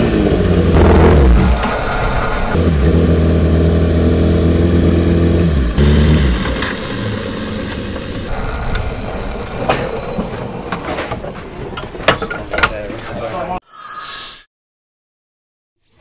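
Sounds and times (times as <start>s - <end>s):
motorcycle engine winding down: 0.0s - 10.8s.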